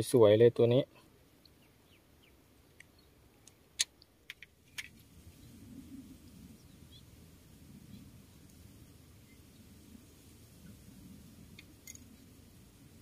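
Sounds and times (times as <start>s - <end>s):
small sharp clicks and taps: 2.7s - 5.0s
faint low rumble: 5.0s - 13.0s.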